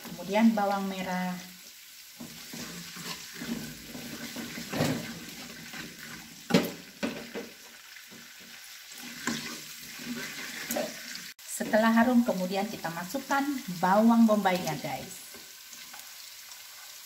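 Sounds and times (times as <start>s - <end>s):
garlic sizzling in oil: 0.0s - 17.0s
metal spatula scraping a pan: 2.2s - 6.5s, 8.2s - 11.8s.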